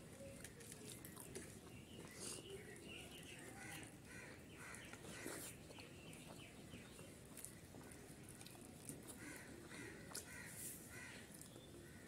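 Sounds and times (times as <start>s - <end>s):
soft eating clicks: 0.1s - 3.9s, 4.7s - 10.4s.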